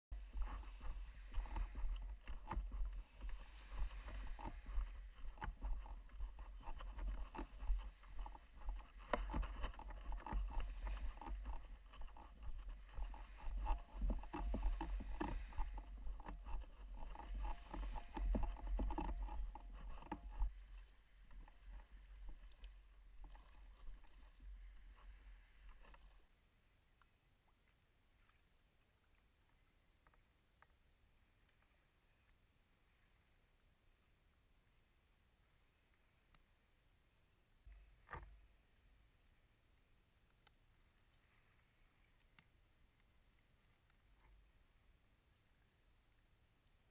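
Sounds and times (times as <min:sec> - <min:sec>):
paddle strokes splashing water: 0:00.1 - 0:26.4.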